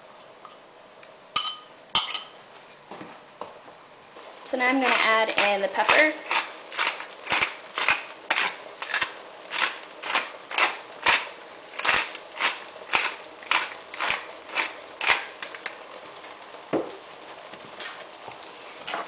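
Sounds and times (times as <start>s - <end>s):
pepper mill grinding: 4.6s - 15.9s.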